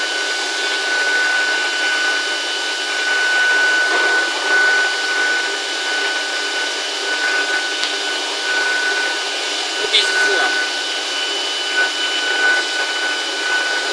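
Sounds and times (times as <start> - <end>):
cnc router cutting wood: 0.0 - 13.9.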